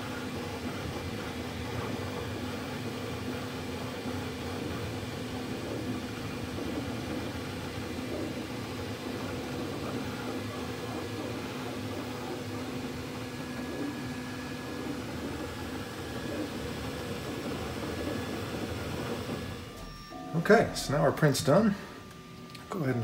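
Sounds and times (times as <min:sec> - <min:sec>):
printer fans whirring: 0:00.0 - 0:23.0
low steady hum: 0:19.7 - 0:23.0.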